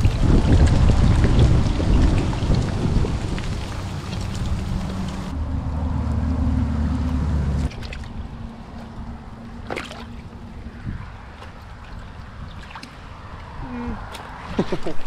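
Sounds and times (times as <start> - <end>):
shallow water lapping: 0.0 - 5.3, 7.7 - 13.2
water splash: 0.0 - 5.3, 7.6 - 8.9, 9.6 - 10.2
wind rumbling on microphone: 0.0 - 15.0.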